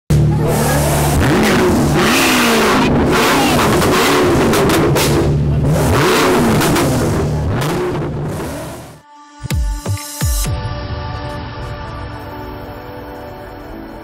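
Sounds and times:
car engine revving: 0:00.1 - 0:09.0.

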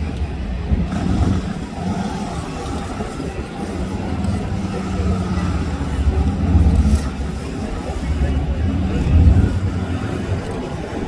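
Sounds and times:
motorcycle engine at low revs: 0:00.0 - 0:11.0.

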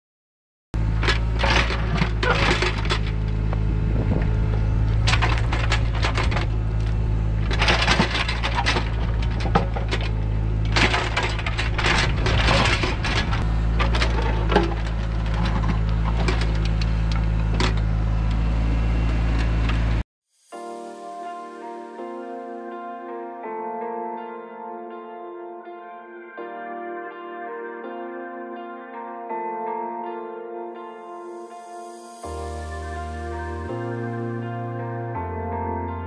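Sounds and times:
diesel engine running: 0:00.8 - 0:20.0
bucket scraping rocky soil: 0:01.1 - 0:03.3, 0:07.4 - 0:16.6.

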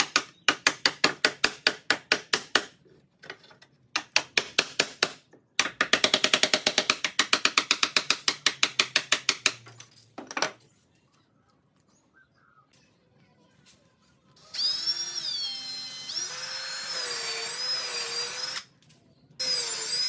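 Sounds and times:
hammer striking a wood chisel: 0:00.0 - 0:02.7, 0:03.9 - 0:09.6.

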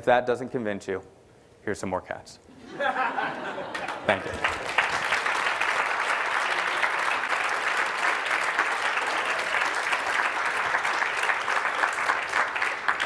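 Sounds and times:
crowd applause: 0:02.8 - 0:13.0.

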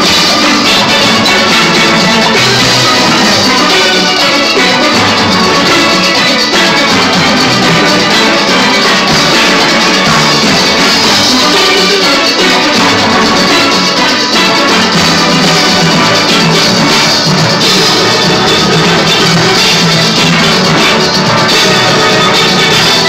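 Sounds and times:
steel band playing: 0:00.0 - 0:23.0.

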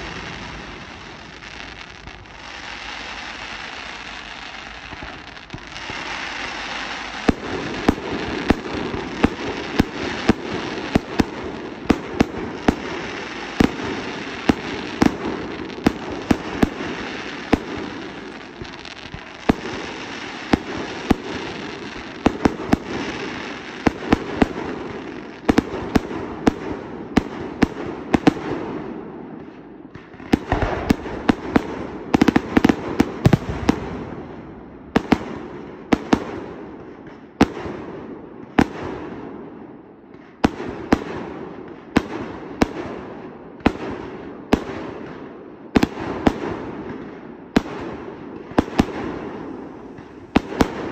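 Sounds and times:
fireworks crackling hiss: 0:00.0 - 0:26.6, 0:30.2 - 0:36.3, 0:48.4 - 0:50.9
fireworks bangs: 0:00.0 - 0:50.9.

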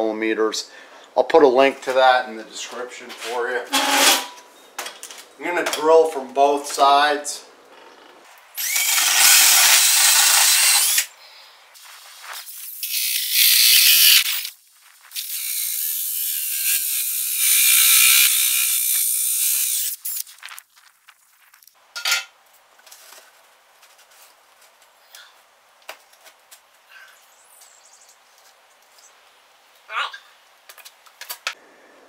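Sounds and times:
drill with hole saw cutting: 0:08.6 - 0:11.1, 0:12.7 - 0:14.5, 0:15.2 - 0:19.9.

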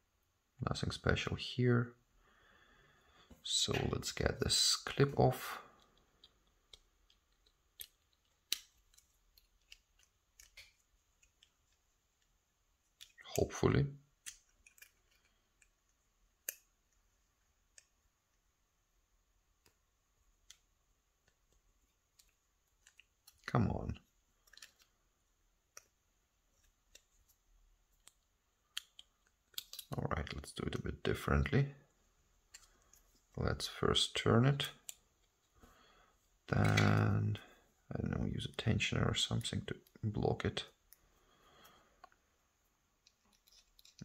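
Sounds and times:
small metal clicks and ticks: 0:05.8 - 0:11.8, 0:14.2 - 0:15.8, 0:24.4 - 0:24.9, 0:28.0 - 0:30.0, 0:43.0 - 0:44.0.

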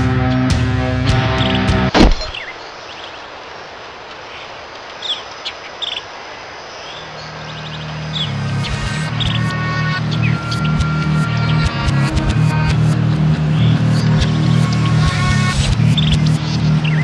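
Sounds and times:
heavy rock music: 0:00.0 - 0:02.4, 0:08.3 - 0:17.0
bird chirps: 0:01.3 - 0:03.2, 0:04.3 - 0:11.7
loud thump: 0:01.9 - 0:02.4
low drone: 0:07.1 - 0:17.0.

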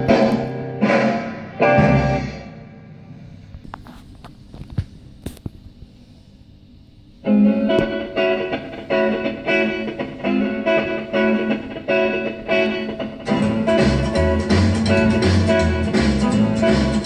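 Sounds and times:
guitar strumming chords: 0:00.0 - 0:03.1, 0:07.2 - 0:17.0
record surface noise and clicks: 0:03.5 - 0:05.9.

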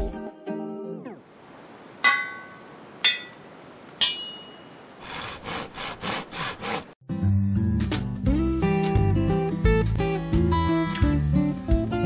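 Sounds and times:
sharp ringing taps: 0:04.0 - 0:04.7
saw strokes: 0:05.0 - 0:07.0
acoustic guitar music: 0:07.1 - 0:12.0.

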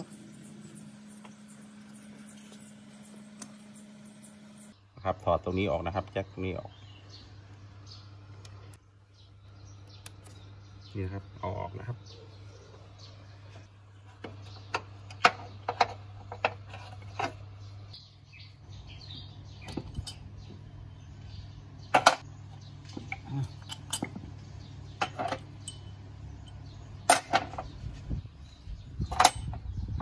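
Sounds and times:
steady low hum: 0:00.0 - 0:30.0
metal clanks: 0:22.9 - 0:24.3, 0:29.0 - 0:29.6.

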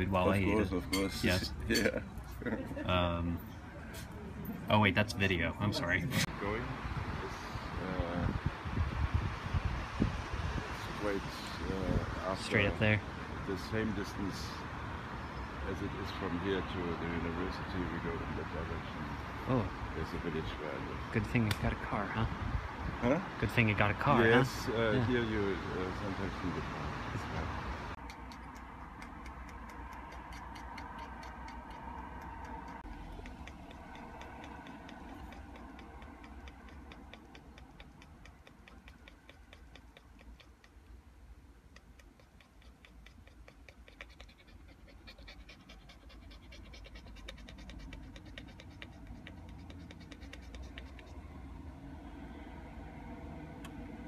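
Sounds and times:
low car rumble: 0:19.4 - 0:54.0
small dog panting: 0:27.9 - 0:41.0, 0:41.6 - 0:51.6.

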